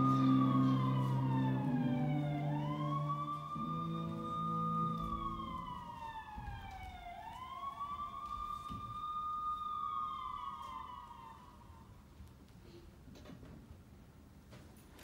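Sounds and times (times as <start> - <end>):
held low music notes: 0.0 - 6.8
siren wailing: 0.0 - 11.9.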